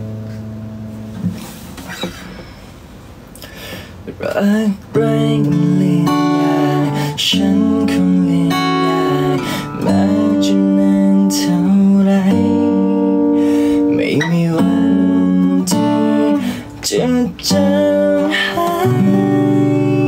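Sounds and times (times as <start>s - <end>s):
acoustic guitar strumming chords: 0.0s - 3.1s, 4.2s - 20.0s
man singing: 4.1s - 20.0s.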